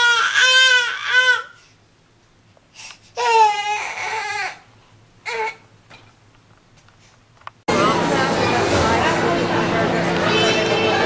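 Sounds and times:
baby crying: 0.0s - 1.6s, 3.2s - 4.6s, 5.2s - 5.6s.

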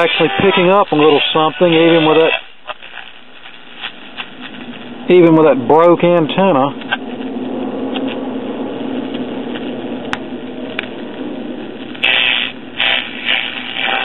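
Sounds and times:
choppy radio station bursts: 0.0s - 3.9s, 12.0s - 14.0s
radio static hiss: 0.0s - 7.1s, 10.9s - 14.0s.

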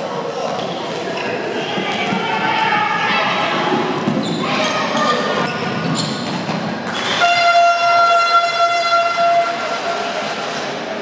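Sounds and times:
echoing sports hall noise: 0.0s - 11.0s
horn blast: 7.0s - 10.0s.

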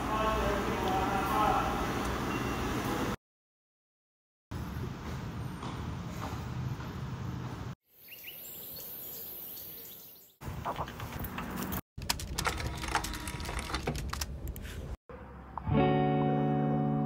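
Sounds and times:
bird chirps: 8.0s - 10.4s.

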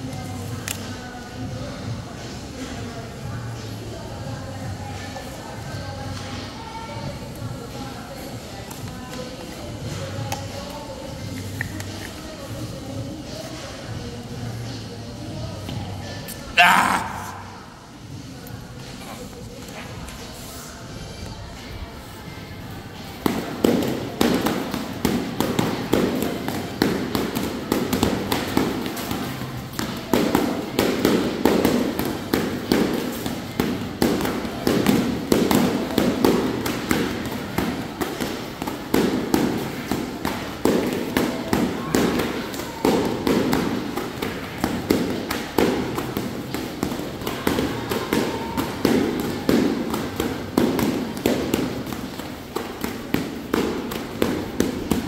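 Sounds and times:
battle ropes slapping floor: 23.2s - 55.0s.

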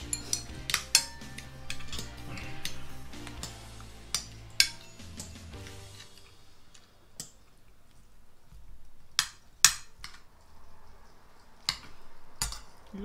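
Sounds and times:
cutlery clinking on plates: 0.0s - 6.4s, 11.6s - 12.8s.

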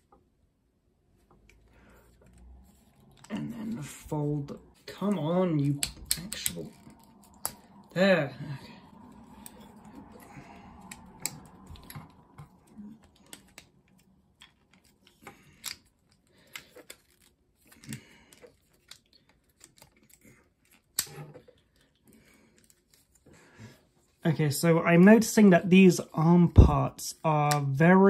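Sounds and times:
plastic toy parts clicking: 5.0s - 7.6s.

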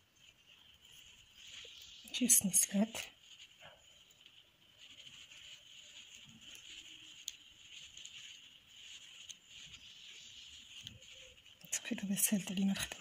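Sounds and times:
crochet hook rustling and ticking: 0.0s - 13.0s
steady low hiss: 0.0s - 13.0s.

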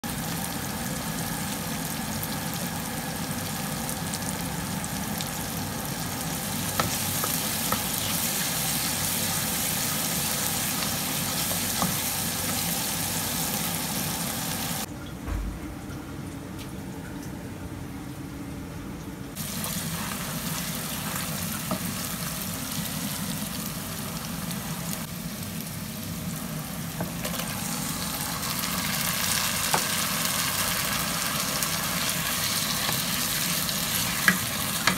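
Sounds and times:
food sizzling in a pan: 0.1s - 14.9s, 19.4s - 34.9s.

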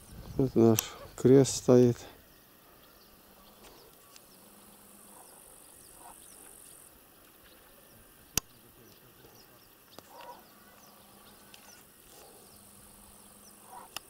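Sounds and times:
quiet rural outdoor ambience: 0.0s - 14.0s
sharp click: 0.7s - 0.9s.

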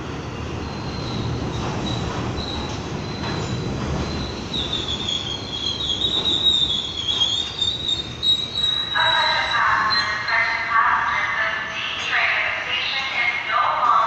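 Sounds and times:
subway cars rumbling: 0.0s - 14.0s
steel wheel squeal: 0.6s - 10.7s.

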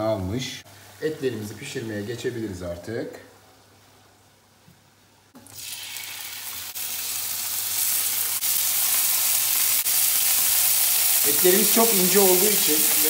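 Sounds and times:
beef sizzling in skillet: 5.4s - 13.0s.

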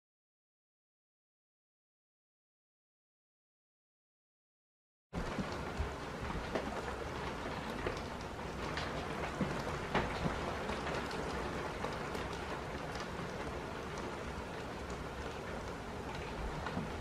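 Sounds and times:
heavy rain heard through window: 5.2s - 17.0s
raindrops ticking: 5.2s - 17.0s.

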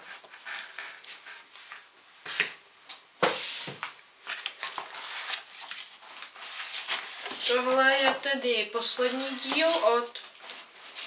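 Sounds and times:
books and cardboard box rustling: 3.2s - 11.0s.

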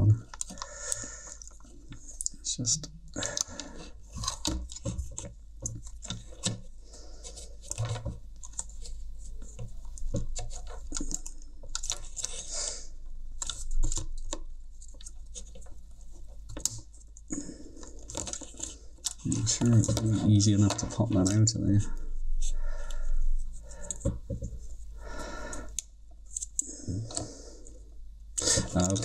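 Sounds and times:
low steady hum: 0.0s - 29.0s
plastic parts clicking and tapping: 0.2s - 6.7s, 7.3s - 12.5s, 13.4s - 21.7s, 28.4s - 29.0s.

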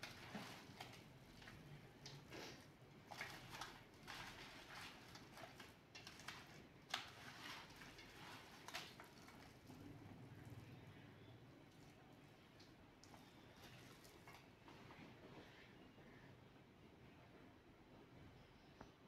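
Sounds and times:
wet squishing: 0.0s - 10.9s, 11.5s - 14.6s.

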